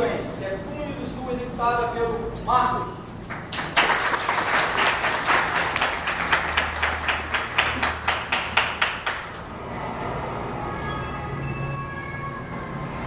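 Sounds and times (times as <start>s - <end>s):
audience clapping: 3.2s - 9.4s.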